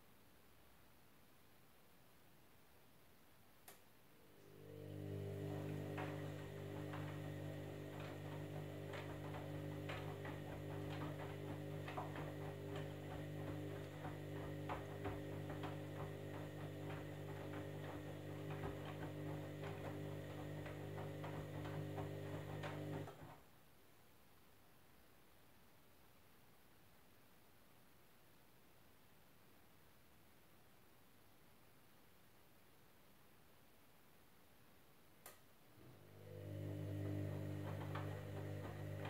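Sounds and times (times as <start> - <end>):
small click: 3.6 - 3.9, 35.2 - 35.5
washing machine motor hum: 4.2 - 23.4, 35.7 - 39.0
wet load tumbling knocks: 5.4 - 23.3.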